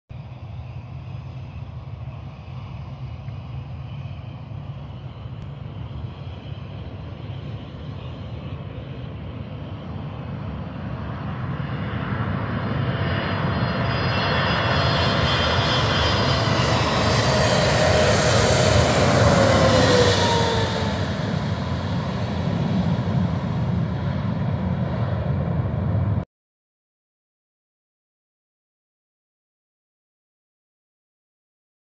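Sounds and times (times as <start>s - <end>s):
jet airliner roar: 0.1s - 26.2s
engine whine falling in pitch: 12.8s - 26.2s.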